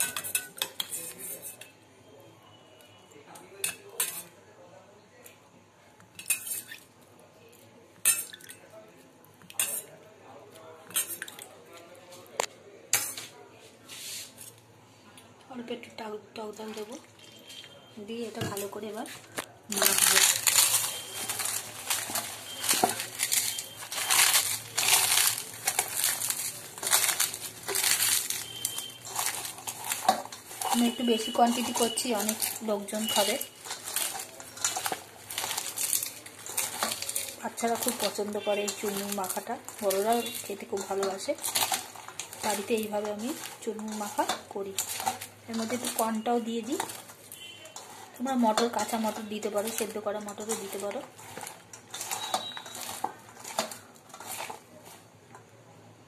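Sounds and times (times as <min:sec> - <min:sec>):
metal utensils clinking on bowl: 0:00.0 - 0:01.8, 0:03.6 - 0:04.3, 0:06.1 - 0:06.9, 0:08.0 - 0:08.7, 0:09.4 - 0:10.0, 0:10.8 - 0:11.5, 0:16.6 - 0:55.4.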